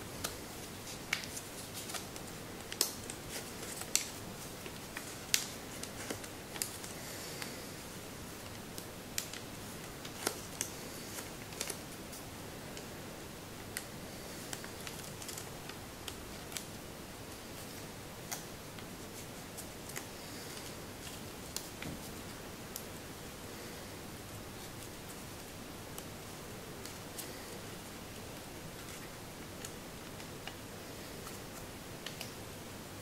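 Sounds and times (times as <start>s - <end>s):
steady hiss: 0.0s - 33.0s
paper crinkling while folded: 0.1s - 7.6s, 8.3s - 12.9s, 13.7s - 22.9s, 24.2s - 32.4s.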